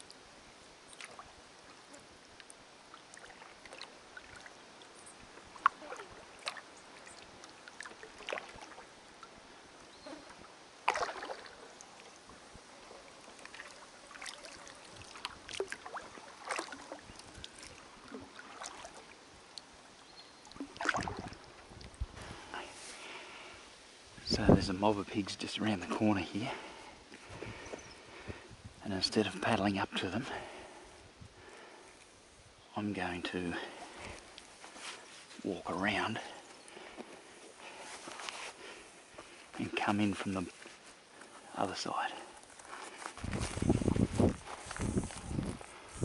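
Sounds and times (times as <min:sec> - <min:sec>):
paddle splashing in water: 0:00.9 - 0:01.9, 0:02.9 - 0:09.4, 0:10.2 - 0:19.8, 0:20.4 - 0:23.4
water dripping: 0:00.9 - 0:09.4, 0:13.2 - 0:22.1.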